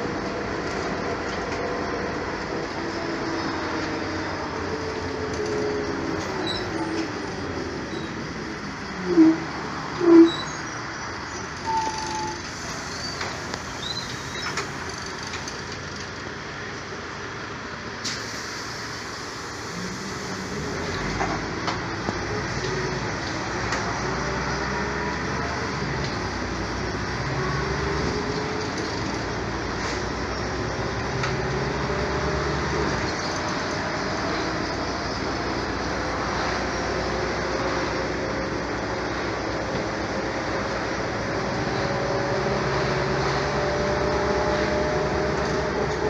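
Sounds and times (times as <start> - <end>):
bus motor tone rising: 0.0 - 16.5, 17.3 - 46.0
bus road and running noise: 0.0 - 46.0
brief loud squeal: 6.4 - 7.1, 9.0 - 14.7.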